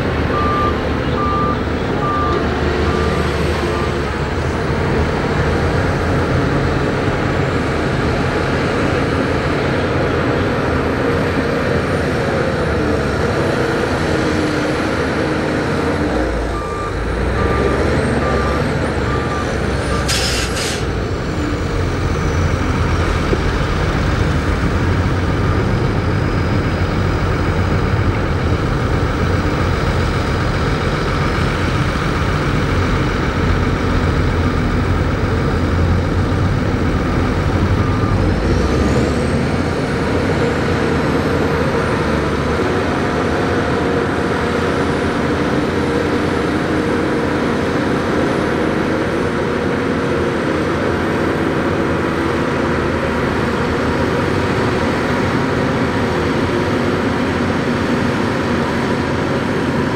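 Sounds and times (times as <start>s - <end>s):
bulldozer diesel engines running: 0.0s - 59.9s
reversing alarm beeps: 0.3s - 4.0s, 16.5s - 20.1s, 36.9s - 38.8s
air brake hiss: 20.0s - 21.0s.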